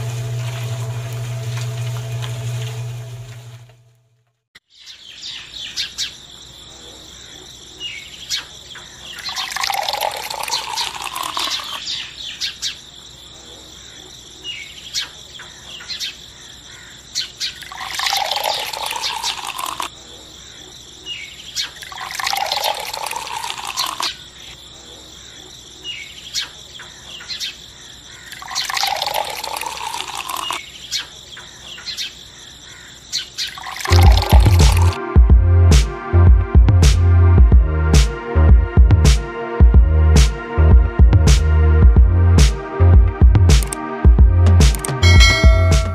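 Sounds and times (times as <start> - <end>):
wet cement pouring: 0.0 - 3.1, 17.6 - 19.9, 21.9 - 24.1, 33.6 - 35.0
dripping: 9.2 - 11.8, 17.6 - 19.9, 21.8 - 24.1, 28.3 - 30.6, 33.5 - 35.0
small clicks: 43.6 - 43.8, 44.6 - 45.0.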